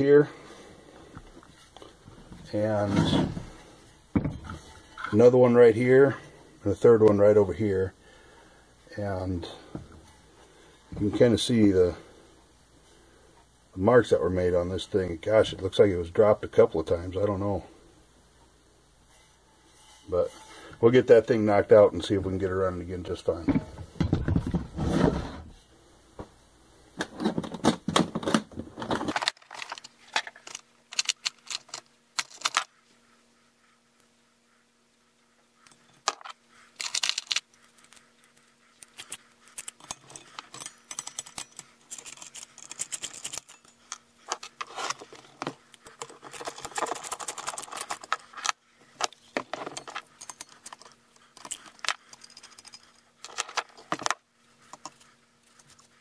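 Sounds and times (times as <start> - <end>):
metal clicks and rattles: 39.0 - 45.1.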